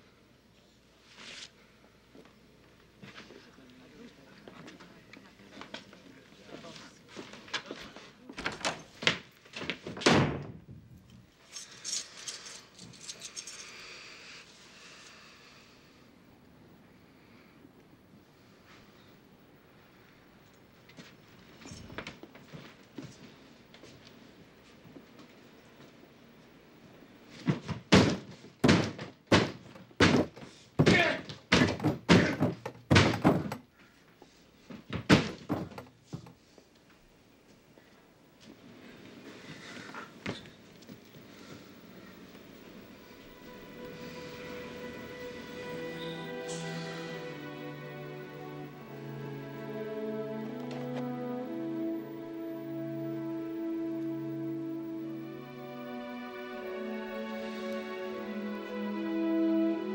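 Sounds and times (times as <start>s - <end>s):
keys jingling: 11.4s - 13.9s
heavy thumps: 27.4s - 33.7s, 34.8s - 36.3s
door banging: 27.5s - 33.7s, 35.0s - 36.0s.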